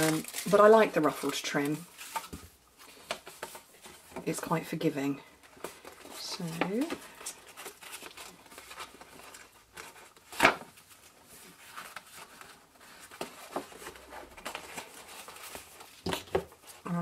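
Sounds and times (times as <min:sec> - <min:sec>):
ribbon rustling: 0:00.0 - 0:04.2, 0:05.4 - 0:16.9.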